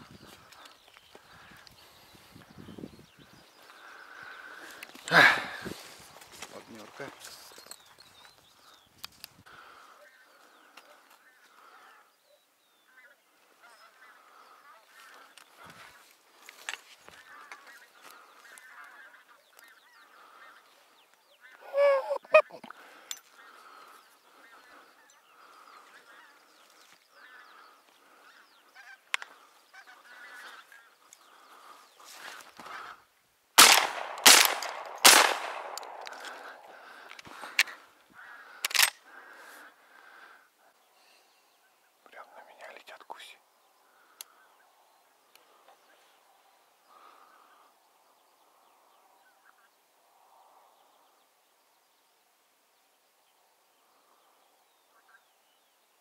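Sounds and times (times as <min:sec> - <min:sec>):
sharp crack: 0:33.6 - 0:37.8.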